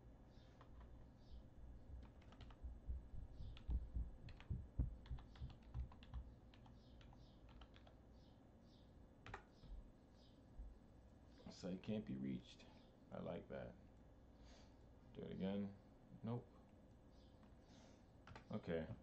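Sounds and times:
heavy keystroke thuds: 1.9s - 6.3s
keyboard key clicks: 3.4s - 7.9s.

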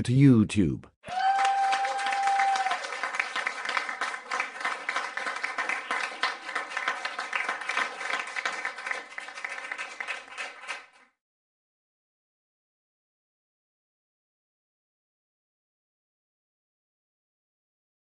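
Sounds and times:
audience applause: 1.0s - 11.0s.

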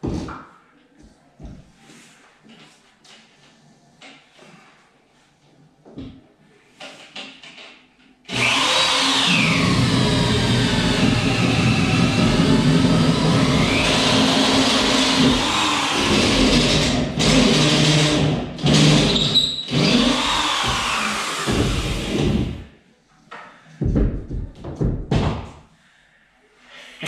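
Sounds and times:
electric drill through wood: 8.3s - 22.7s.

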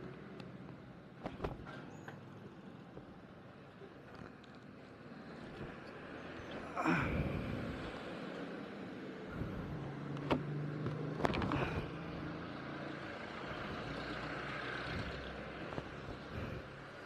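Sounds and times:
passing motor noise: 5.6s - 17.0s
vehicle engine running: 7.0s - 17.0s.

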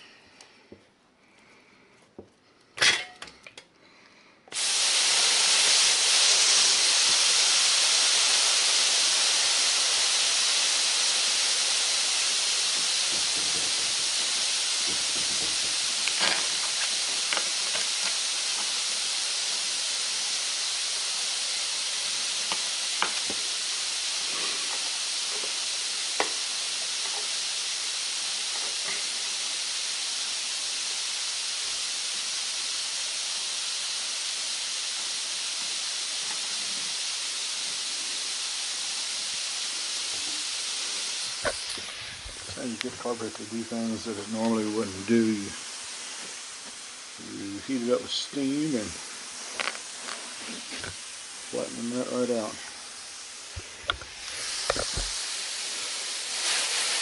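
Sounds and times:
steam hissing from iron: 0.0s - 0.2s, 4.5s - 57.0s.

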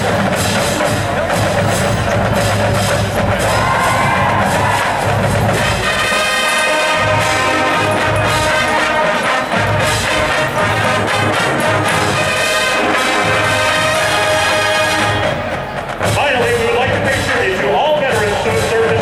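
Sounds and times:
steady low drum beat: 0.0s - 6.2s, 15.2s - 19.0s
brass sustained chords: 4.7s - 16.8s.

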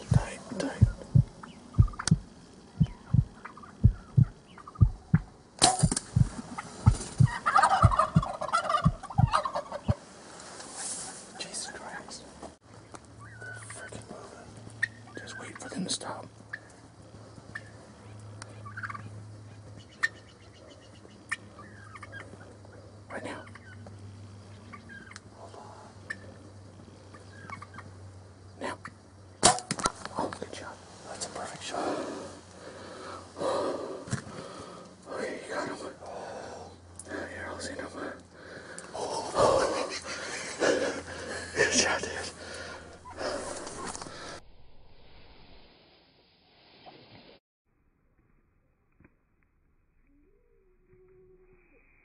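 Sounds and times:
turkeys gobbling and fighting: 0.0s - 10.0s, 12.8s - 15.8s, 16.4s - 28.0s
double thump like heartbeat: 0.1s - 9.4s
bow shot snap: 5.1s - 6.3s, 29.4s - 30.1s.

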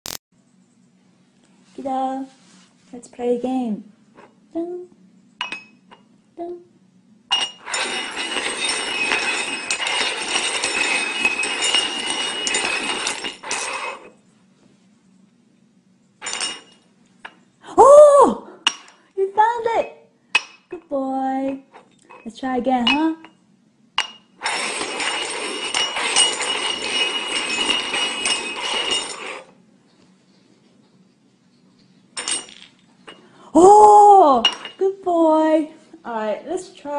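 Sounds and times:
cups clinking and knocking: 7.3s - 14.1s, 16.2s - 17.4s, 18.7s - 19.0s, 22.9s - 23.4s, 24.0s - 29.5s, 32.2s - 33.3s, 34.4s - 34.8s
cups scraping across tabletop: 7.4s - 14.2s, 24.4s - 33.2s.

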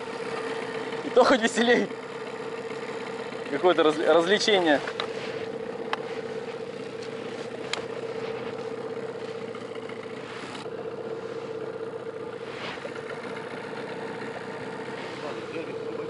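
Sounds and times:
outboard motor running: 0.0s - 16.0s.

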